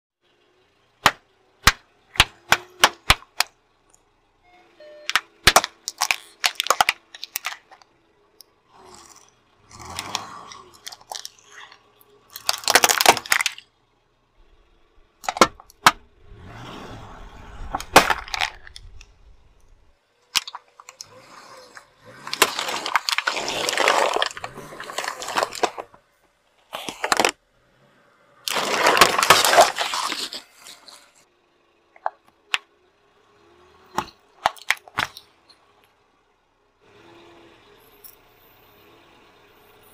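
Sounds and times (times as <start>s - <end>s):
plastic toys cracking and crunching: 5.1s - 7.9s, 8.8s - 13.7s, 15.2s - 16.0s, 17.7s - 19.2s, 20.3s - 26.0s, 26.7s - 27.4s, 28.4s - 31.2s, 34.0s - 35.3s.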